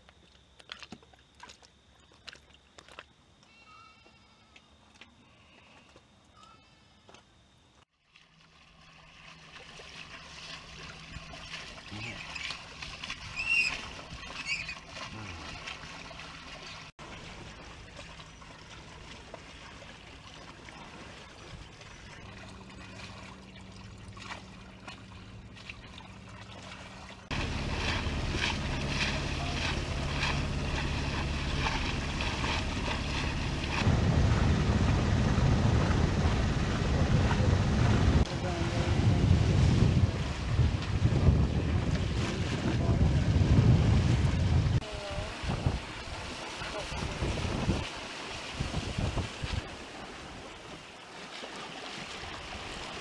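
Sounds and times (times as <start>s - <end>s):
water rushing along hull: 8.0s - 53.0s
steady low hum: 22.1s - 41.4s
wind buffeting microphone: 27.3s - 49.8s.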